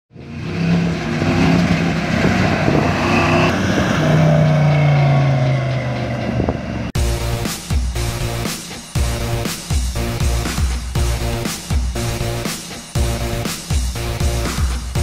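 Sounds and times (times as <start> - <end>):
pickup truck driving by: 0.2 - 7.0.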